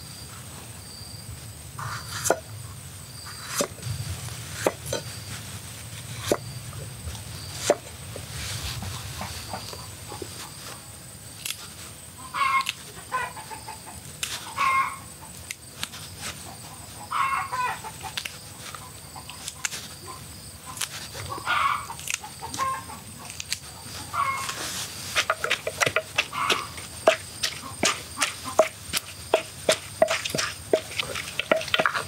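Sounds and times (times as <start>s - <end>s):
chickens clucking: 8.7s - 10.9s, 12.2s - 15.5s, 16.2s - 32.0s.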